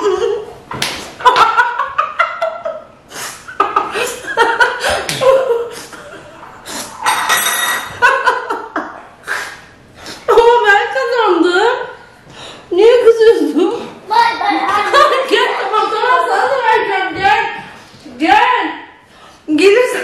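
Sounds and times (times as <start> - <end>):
woman laughing: 1.3 - 6.4.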